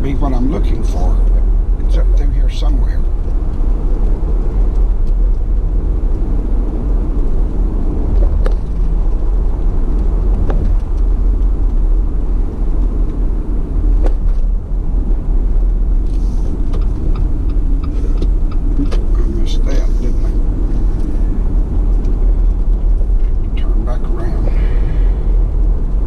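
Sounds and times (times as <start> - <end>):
car interior road rumble: 0.0 - 26.0.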